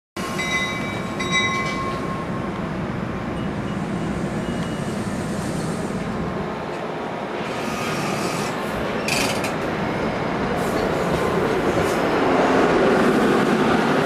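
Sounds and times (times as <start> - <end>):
train wheels rumbling on rails: 0.2 - 14.0
high ringing tone: 0.4 - 2.4.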